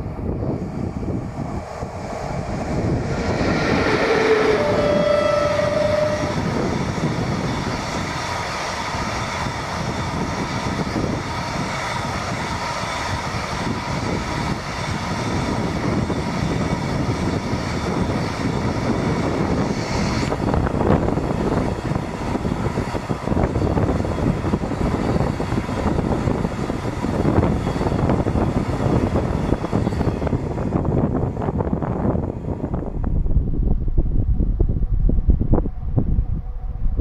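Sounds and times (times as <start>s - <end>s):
train rolling and clattering: 0.0s - 37.0s
two-note locomotive horn: 2.9s - 6.9s.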